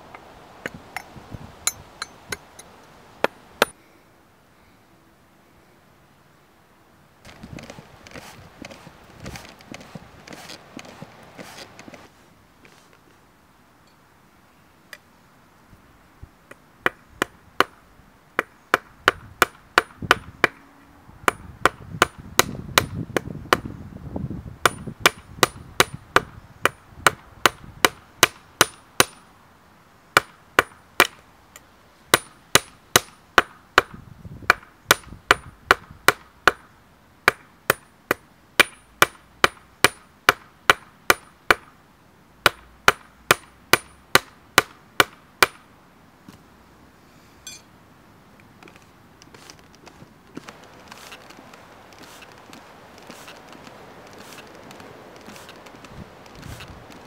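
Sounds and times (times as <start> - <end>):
hammer striking metal rod: 47.4 - 47.7.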